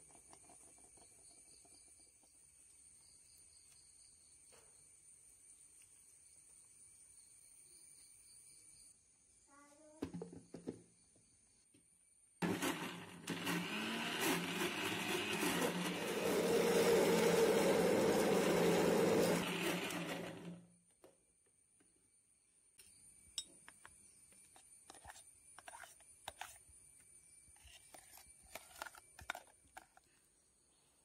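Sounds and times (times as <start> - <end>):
mixer-grinder motor running: 12.4 - 20.7.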